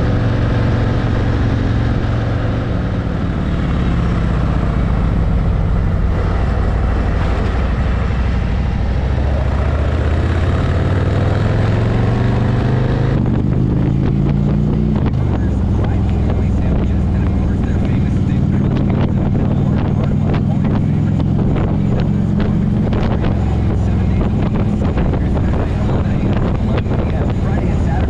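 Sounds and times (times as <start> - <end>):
motorcycle engine accelerating: 0.0 - 28.0.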